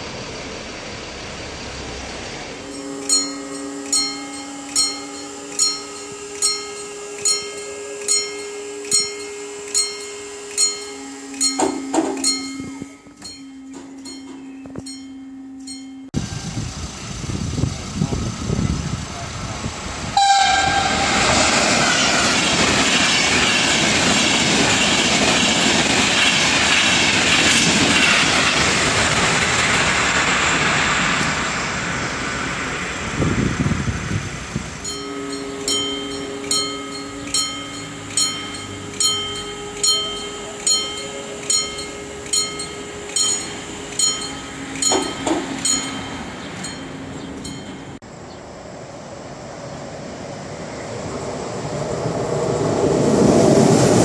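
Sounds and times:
train wheels rumbling on rails: 0:00.0 - 0:54.0
crossing warning bell ringing: 0:02.6 - 0:16.2, 0:20.2 - 0:29.4, 0:33.6 - 0:48.1.

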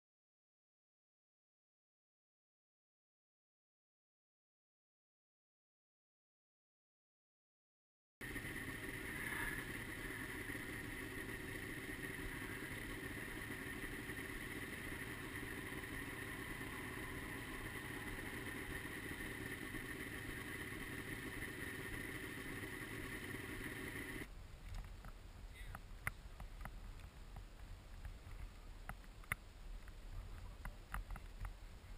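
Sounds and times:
snowmobile engines idling: 0:08.2 - 0:24.3.

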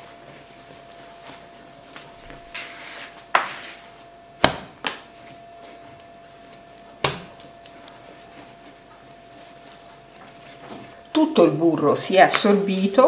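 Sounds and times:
dough slapping on worktop: 0:01.9 - 0:03.8, 0:04.4 - 0:05.3, 0:06.4 - 0:08.1, 0:12.3 - 0:12.6.

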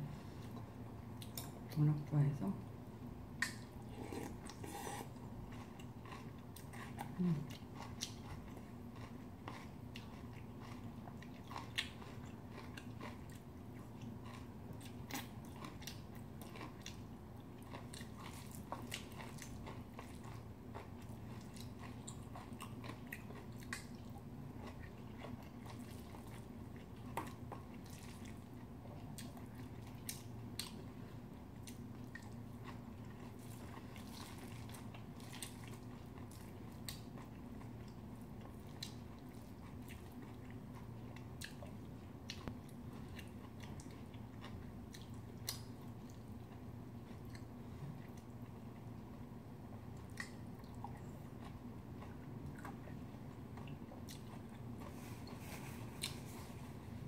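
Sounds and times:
faint low hum: 0:00.0 - 0:57.0
person chewing: 0:03.4 - 0:49.3, 0:49.9 - 0:57.0.

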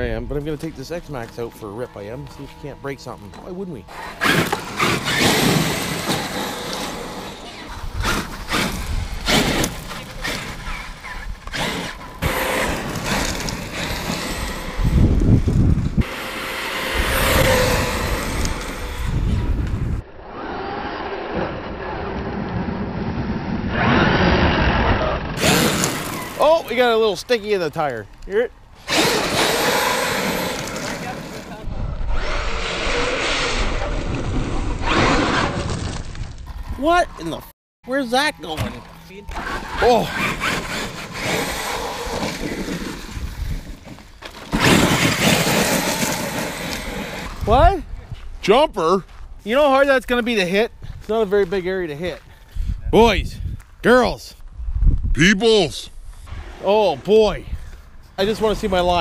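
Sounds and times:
electric toy motor: 0:11.5 - 0:15.2, 0:16.0 - 0:19.6, 0:25.4 - 0:26.4, 0:28.8 - 0:31.4, 0:39.3 - 0:42.9
electric motor running: 0:16.0 - 0:19.5
tyres crunching gravel: 0:25.4 - 0:31.6, 0:38.6 - 0:47.5.

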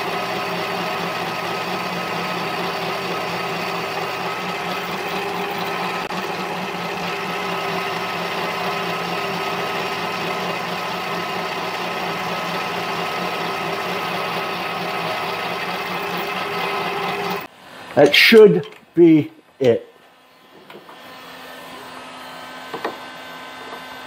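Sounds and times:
lathe whining while cutting metal: 0:00.0 - 0:17.5.

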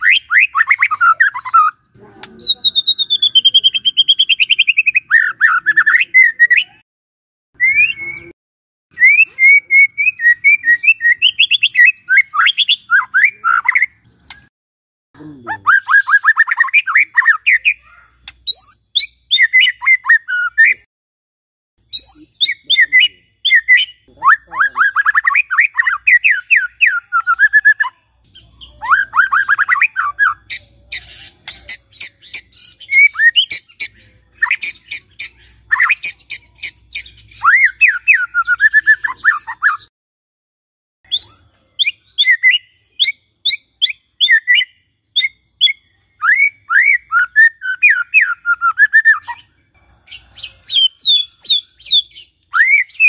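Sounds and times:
bird singing fast repeated notes: 0:00.0 - 0:06.8, 0:09.1 - 0:14.5, 0:15.4 - 0:20.9, 0:21.8 - 0:39.9, 0:41.1 - 0:53.0
sharp bird clicks: 0:13.7 - 0:14.5, 0:18.2 - 0:18.8.

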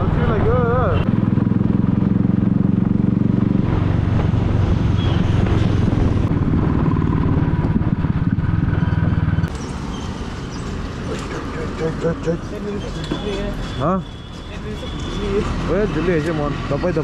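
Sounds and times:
road and wind noise: 0:00.0 - 0:17.0
motorcycle engine running: 0:01.0 - 0:09.5.

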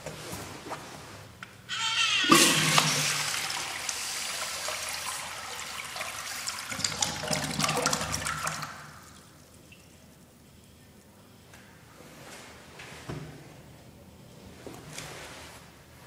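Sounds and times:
urinal flushing: 0:01.8 - 0:09.9.

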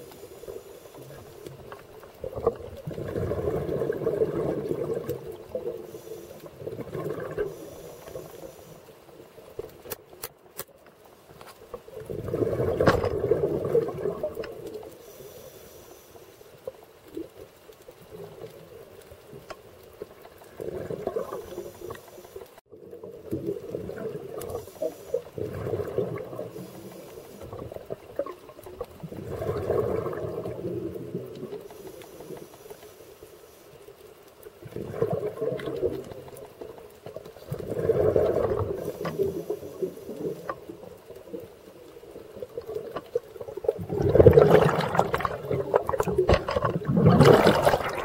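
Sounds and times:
underwater exhaust bubbles: 0:00.0 - 0:09.9, 0:11.7 - 0:48.0
sharp clicks: 0:09.6 - 0:11.0.

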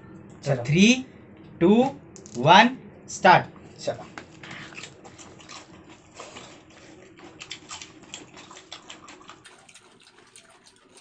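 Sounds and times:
people eating: 0:03.5 - 0:11.0.

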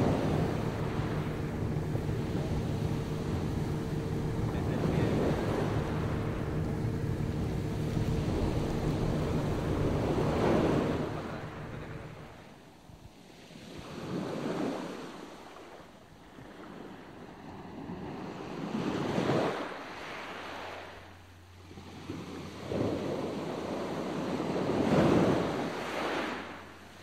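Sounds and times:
wind on microphone: 0:00.0 - 0:12.4
low steady hum: 0:00.0 - 0:14.2, 0:15.4 - 0:27.0
water splashing along boat hull: 0:00.0 - 0:14.8.

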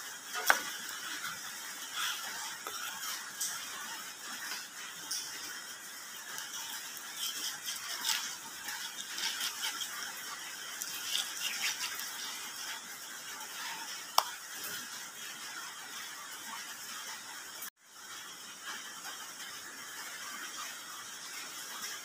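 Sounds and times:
knife scraping and tapping fish: 0:00.3 - 0:05.5, 0:06.3 - 0:12.8.

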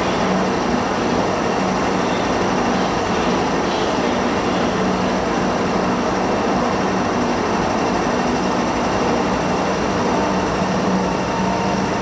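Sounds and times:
electric train equipment humming: 0:00.0 - 0:12.0.

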